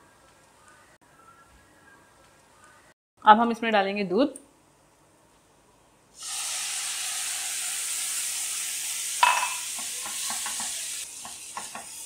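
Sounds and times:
food sizzling in a pan: 6.2s - 12.0s.

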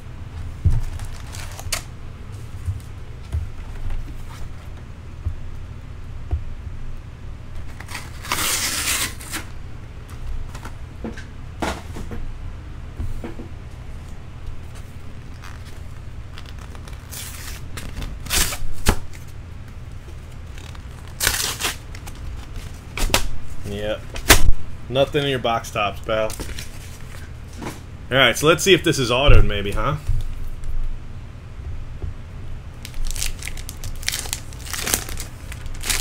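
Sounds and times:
steady low hum: 0.0s - 36.0s
paper wrappers rustling and tearing: 0.6s - 2.9s, 7.6s - 9.5s, 15.2s - 19.3s, 20.2s - 23.0s, 26.1s - 27.2s, 32.8s - 36.0s.

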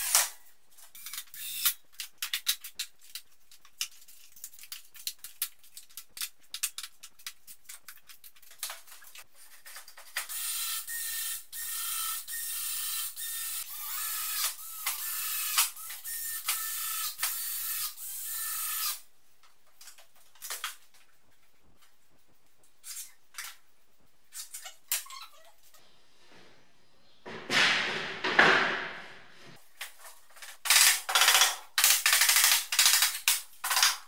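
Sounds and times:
cordless drill whining: 10.3s - 19.0s.

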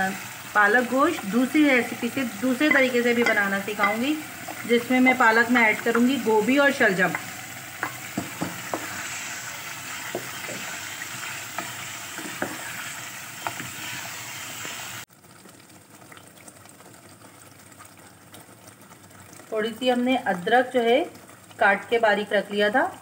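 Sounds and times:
meat sizzling in a pot: 0.0s - 15.2s
wooden spoon knocking a pot: 2.5s - 9.1s, 10.1s - 10.7s, 11.6s - 12.7s.

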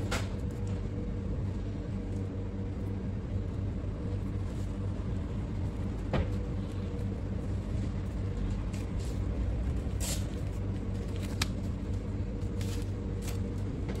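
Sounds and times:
kitchen background rumble: 0.0s - 14.0s.

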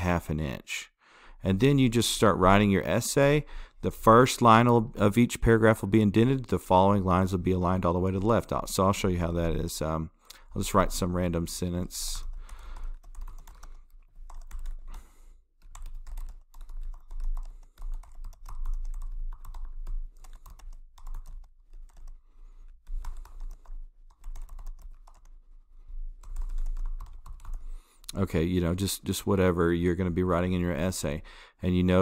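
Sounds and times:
keyboard typing clicks: 12.3s - 15.0s, 15.6s - 22.2s, 22.9s - 25.4s, 26.2s - 28.2s.

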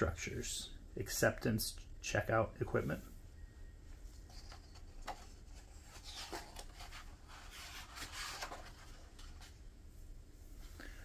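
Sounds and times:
book pages turning: 4.1s - 9.6s.

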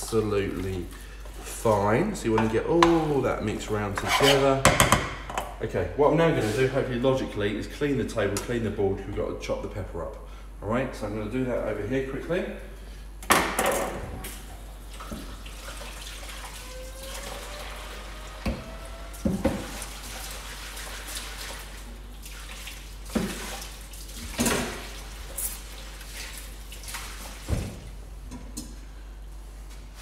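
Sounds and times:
tap water running into sink: 14.8s - 27.7s.

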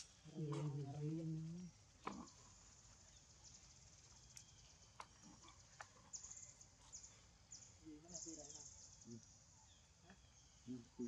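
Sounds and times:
faint outdoor ambience: 0.0s - 11.0s.

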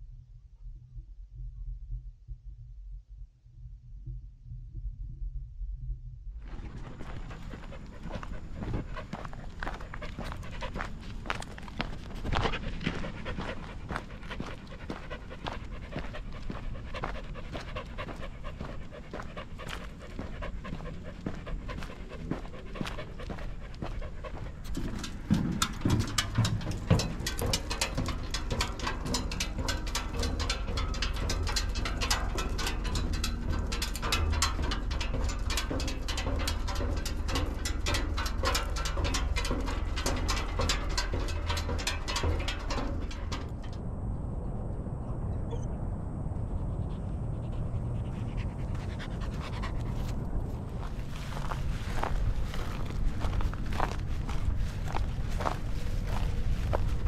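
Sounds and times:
low thumps: 6.4s - 45.0s
dog panting: 6.5s - 43.5s, 46.5s - 56.4s.

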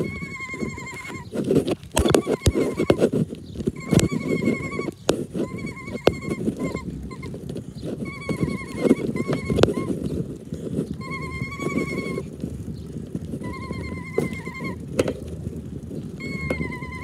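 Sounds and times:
ride-on train rumbling: 0.0s - 17.0s
wheels clicking and knocking: 0.0s - 17.0s
high wavering squeal: 3.8s - 7.3s.

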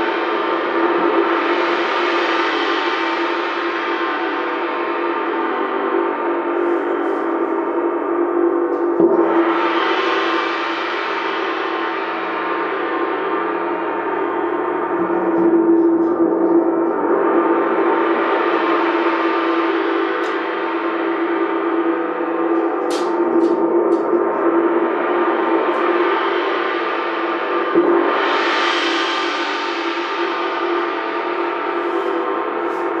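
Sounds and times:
wind gong ringing: 0.0s - 33.0s
soft mallet striking gong: 19.2s - 24.5s, 29.0s - 33.0s.

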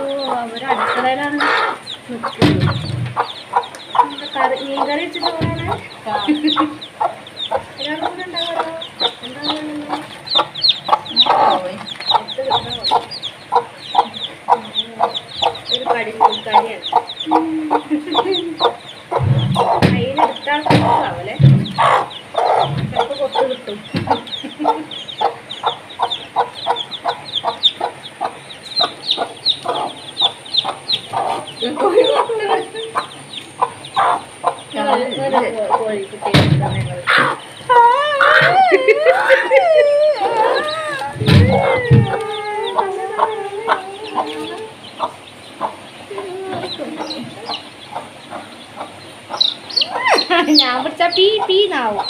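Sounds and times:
chicks peeping: 0.0s - 52.0s
hen clucking: 0.0s - 52.0s
handling thumps: 19.2s - 21.9s
hen long call: 36.9s - 48.1s, 49.5s - 52.0s.

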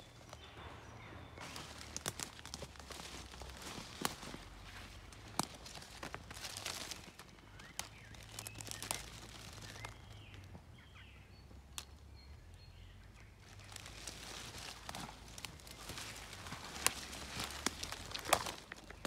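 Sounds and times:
rustling of wet leaves: 0.0s - 19.0s
twig cracks: 1.4s - 10.5s, 13.6s - 19.0s.

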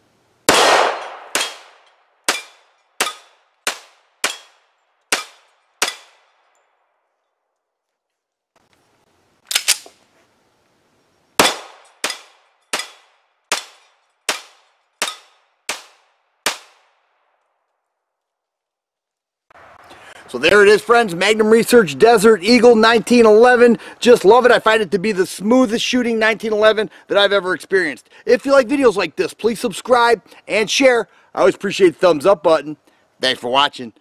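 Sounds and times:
pistol shots: 0.5s - 6.5s, 11.4s - 17.0s
quick cracks: 9.4s - 10.0s.

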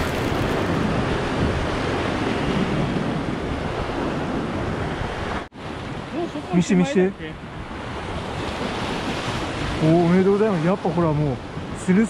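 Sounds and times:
sea surf washing on rocks: 0.0s - 2.4s
wind buffeting microphone: 0.0s - 11.9s.

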